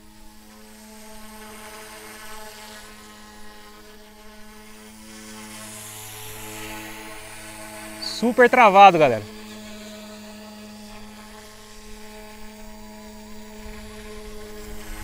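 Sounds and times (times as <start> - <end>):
rc helicopter rotor whir: 0.0 - 15.0
tail rotor whine: 8.0 - 10.8.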